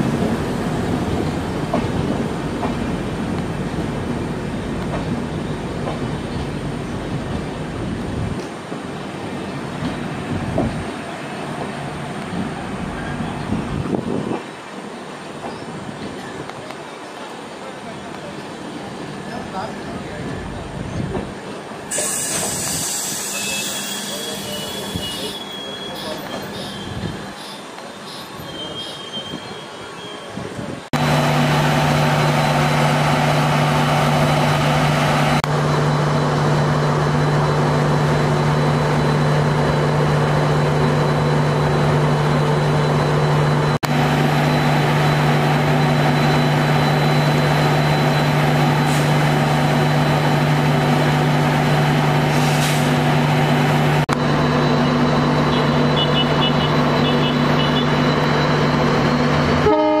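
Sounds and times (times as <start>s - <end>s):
diesel train engine idling: 31.0s - 60.0s.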